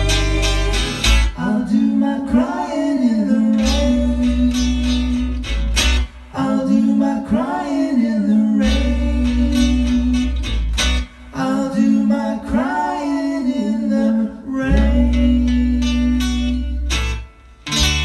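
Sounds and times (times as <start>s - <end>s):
electric bass: 0.0s - 18.0s
guitars: 0.0s - 18.0s.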